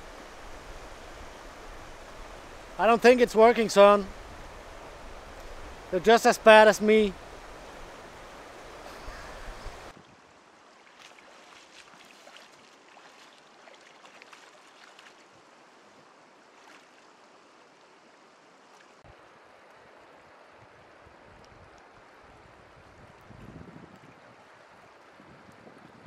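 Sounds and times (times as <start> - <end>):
river water rushing over stones: 0.0 - 21.0
wind gust on microphone: 6.9 - 10.0, 20.6 - 26.0
light ticking splashes: 10.7 - 15.6.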